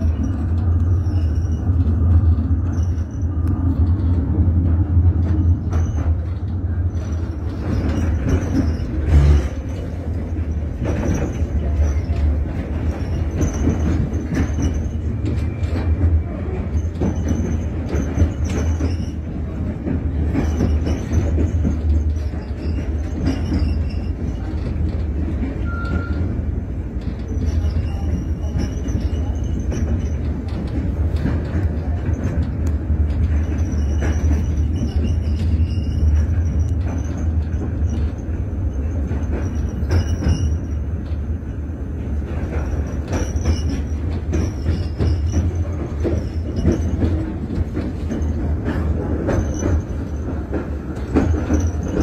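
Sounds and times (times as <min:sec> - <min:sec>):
high wheel squeal: 0:00.0 - 0:03.4, 0:06.9 - 0:19.6, 0:20.4 - 0:24.6, 0:25.6 - 0:26.3, 0:27.2 - 0:30.3, 0:33.4 - 0:41.0
knocks of train wheels: 0:00.0 - 0:52.0
train wheels rumbling on rail: 0:00.0 - 0:52.0.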